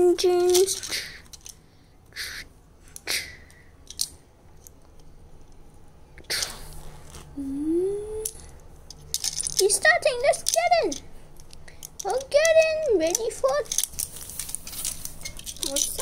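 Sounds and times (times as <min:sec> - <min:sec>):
child humming like an engine: 0:07.3 - 0:08.5
plastic pieces scraping and rustling: 0:11.7 - 0:16.0.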